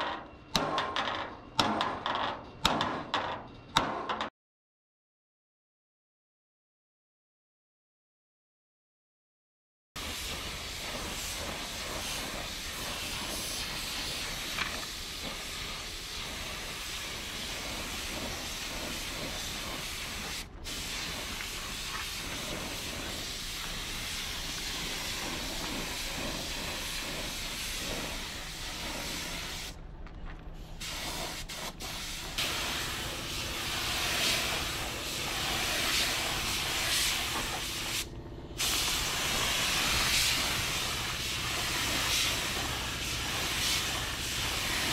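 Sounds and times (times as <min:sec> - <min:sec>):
spray gun hissing: 0:10.0 - 0:29.8, 0:30.8 - 0:44.9.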